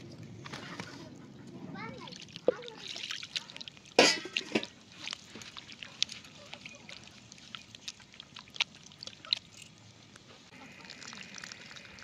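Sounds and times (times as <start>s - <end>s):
hand squelching raw meat: 2.1s - 10.2s.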